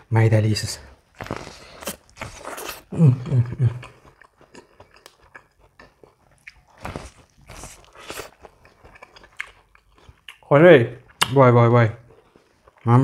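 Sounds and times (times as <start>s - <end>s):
wet chewing clicks: 1.0s - 11.4s
crunching bites of corn: 1.1s - 3.0s, 3.7s - 10.4s.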